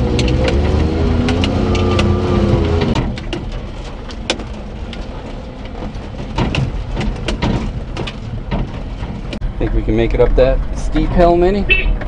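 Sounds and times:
cab clicks and knocks: 0:00.0 - 0:09.4
truck engine rumbling: 0:00.0 - 0:12.0.

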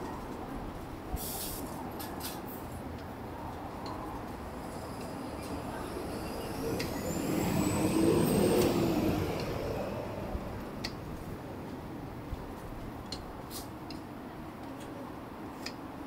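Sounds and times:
motor vehicle passing by: 0:04.0 - 0:12.9.

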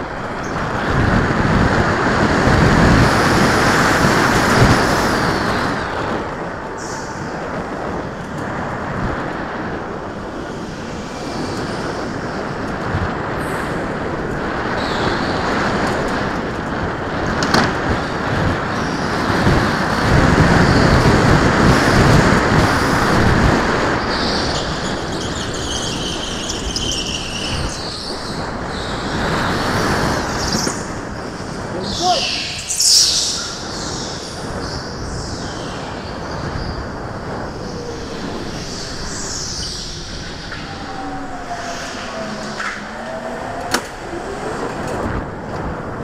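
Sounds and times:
go-kart motor and tyre noise: 0:00.0 - 0:46.0
high wavering tyre squeal: 0:22.7 - 0:45.4.

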